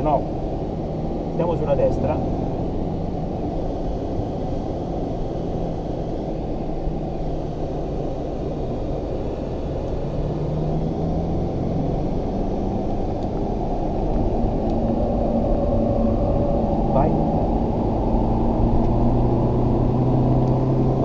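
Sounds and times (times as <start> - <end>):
car engine drone: 0.0 - 21.0.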